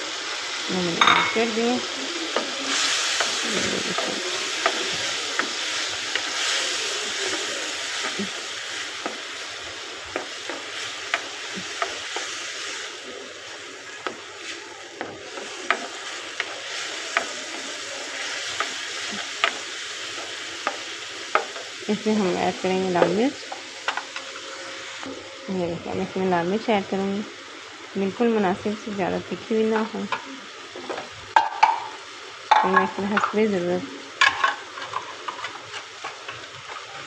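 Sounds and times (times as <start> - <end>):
vegetables sizzling in oil: 0.0 - 37.0
spoon scraping and tapping pan: 31.4 - 33.4.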